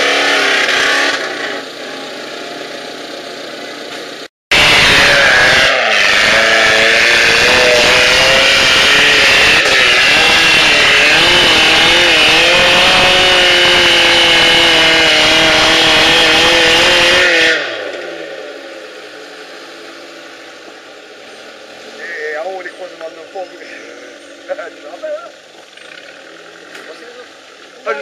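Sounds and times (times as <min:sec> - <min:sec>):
off-road engine revving hard: 0:00.0 - 0:19.0.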